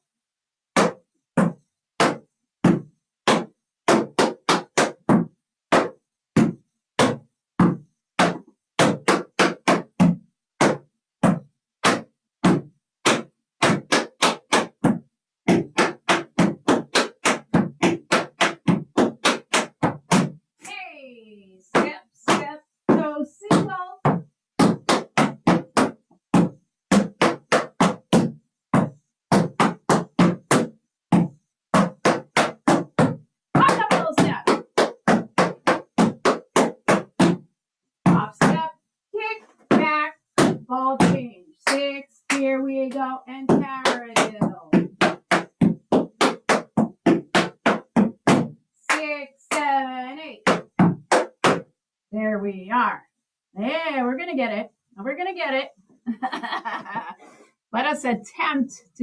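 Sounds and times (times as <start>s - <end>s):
tap shoes on wooden board: 0.8s - 20.4s, 21.7s - 37.4s, 39.5s - 49.7s, 50.4s - 51.7s.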